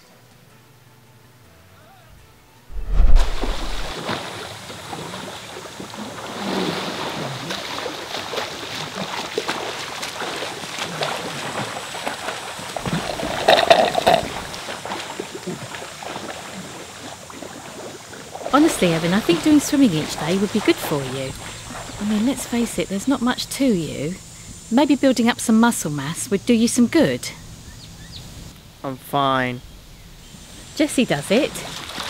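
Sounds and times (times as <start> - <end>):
swimmer splashing: 2.9 - 24.2, 30.8 - 32.0.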